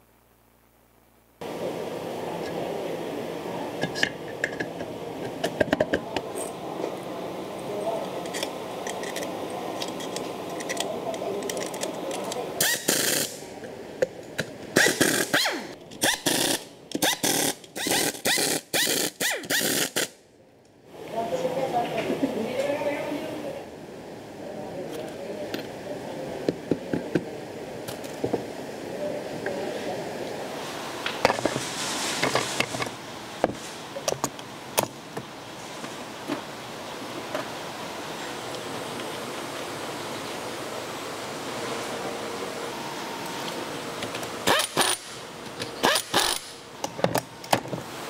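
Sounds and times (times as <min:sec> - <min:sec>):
workshop background noise: 0:01.4 - 0:48.0
pneumatic screwdriver bursts: 0:12.6 - 0:13.4, 0:14.8 - 0:20.2, 0:44.4 - 0:45.2, 0:45.8 - 0:46.6.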